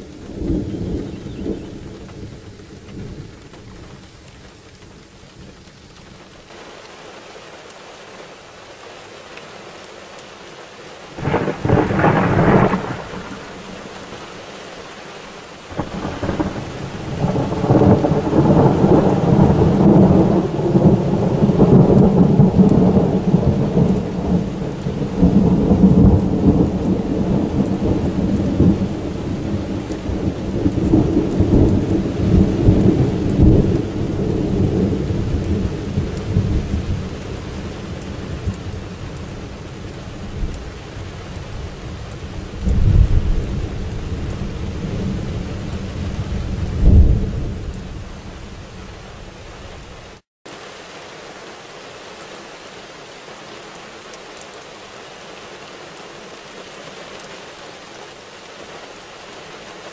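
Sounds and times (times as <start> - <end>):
sharp thunder clap: 11.2 - 13.6
rolling thunder rumble: 11.2 - 14.2, 15.7 - 37.8, 42.5 - 49.3.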